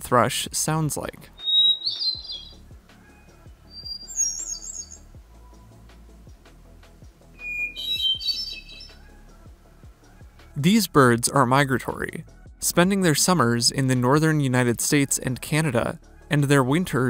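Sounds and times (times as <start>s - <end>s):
thrush singing: 1.4s - 5.1s, 7.4s - 9.4s.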